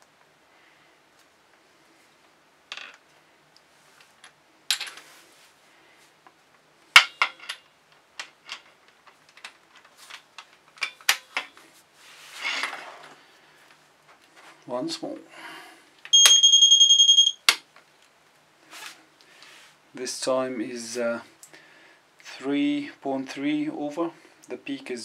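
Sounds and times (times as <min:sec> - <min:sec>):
metal tools clinking on tile: 0:07.0 - 0:08.8.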